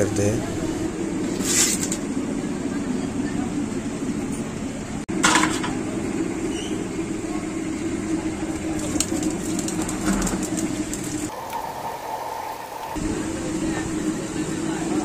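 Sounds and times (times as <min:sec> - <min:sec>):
oil sizzling and crackling: 0:08.5 - 0:13.0.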